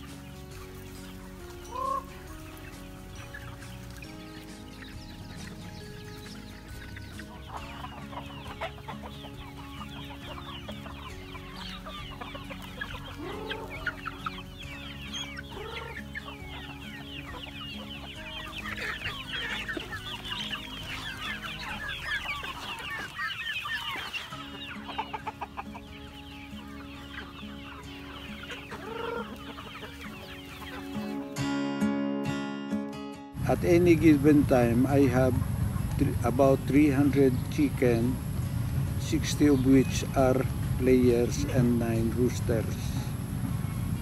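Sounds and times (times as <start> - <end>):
chickens clucking: 0.0 - 31.6, 33.4 - 44.0
chicken squawks: 1.4 - 3.6, 6.4 - 31.4.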